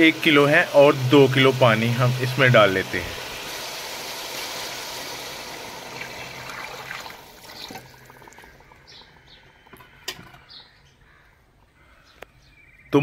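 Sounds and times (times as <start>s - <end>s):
water pouring into metal pan: 0.0s - 8.7s.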